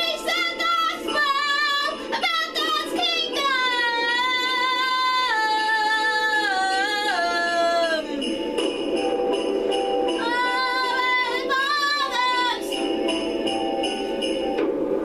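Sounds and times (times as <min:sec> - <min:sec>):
woman singing high melody: 0:00.0 - 0:08.2, 0:10.2 - 0:12.9
backing music: 0:00.0 - 0:15.0.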